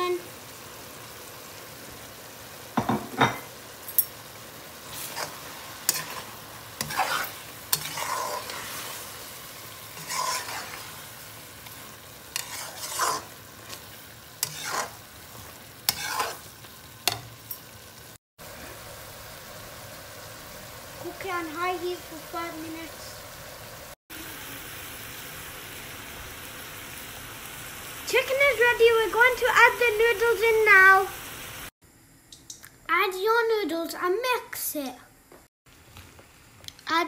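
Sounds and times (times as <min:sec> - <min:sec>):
food sizzling in a pan: 0:00.0 - 0:37.0
spatula scraping a pan: 0:04.8 - 0:17.2.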